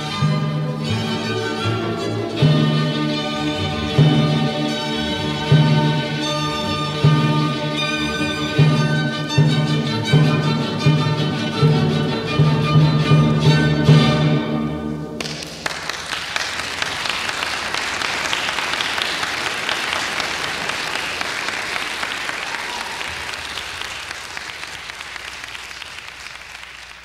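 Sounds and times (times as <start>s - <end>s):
audience applauding: 15.2s - 27.0s.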